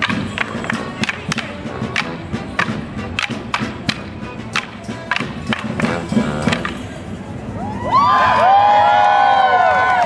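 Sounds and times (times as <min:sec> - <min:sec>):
band with drum and brass: 0:00.0 - 0:06.9
wooden sticks clacking: 0:00.0 - 0:06.9.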